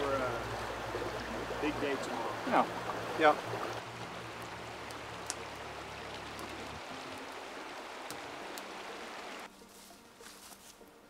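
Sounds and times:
river rushing: 0.0s - 9.5s
campfire wood popping: 2.7s - 8.9s.

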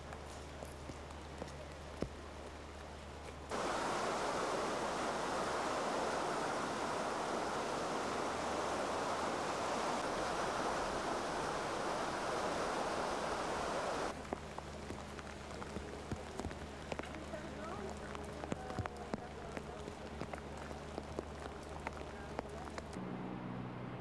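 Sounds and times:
low hum: 0.0s - 24.0s
river water rushing: 3.5s - 23.0s.

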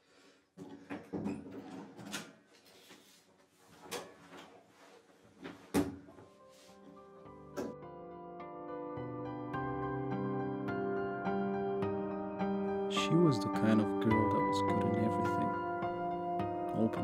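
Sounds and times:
cabinet rummaging knocks and clicks: 0.6s - 2.4s.

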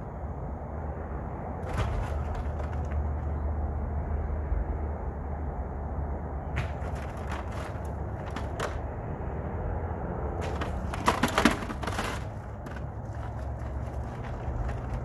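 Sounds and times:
concrete chunks knocking in wheelbarrow: 1.6s - 3.4s, 6.6s - 8.8s, 10.4s - 15.0s.

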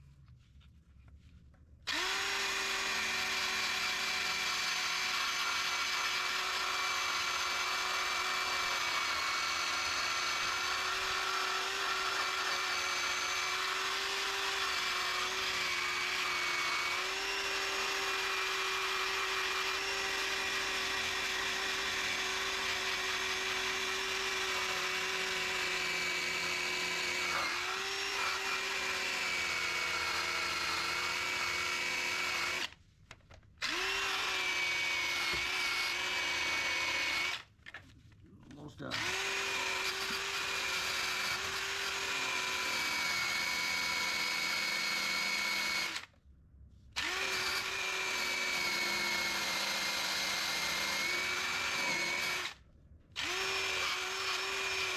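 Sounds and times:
drill with abrasive wheel on steel: 1.9s - 32.8s, 33.6s - 37.5s, 38.8s - 46.2s, 47.0s - 52.6s, 53.2s - 54.9s.

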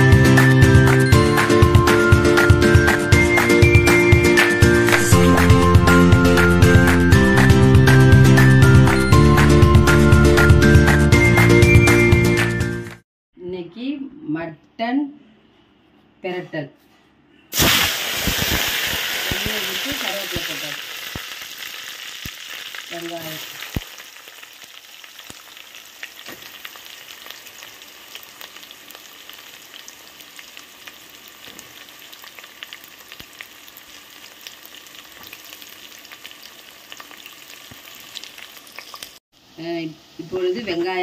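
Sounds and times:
hot oil sizzling in a pot: 17.6s - 41.0s.

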